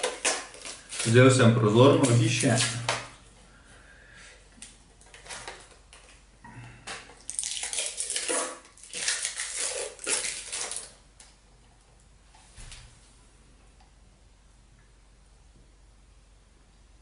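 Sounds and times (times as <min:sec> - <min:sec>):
plastic packaging crinkling: 0:00.0 - 0:03.2, 0:04.6 - 0:06.2, 0:06.9 - 0:11.3.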